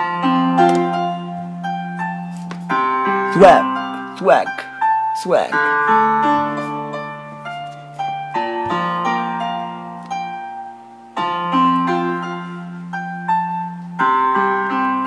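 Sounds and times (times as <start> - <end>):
single piano notes: 0.0 - 10.6
slow piano chords: 0.0 - 15.0.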